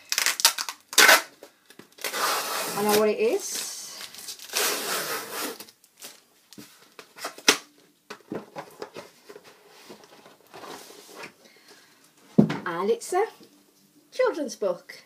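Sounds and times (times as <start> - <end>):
cardboard tearing: 0.0 - 1.3, 2.0 - 3.4, 4.2 - 5.7.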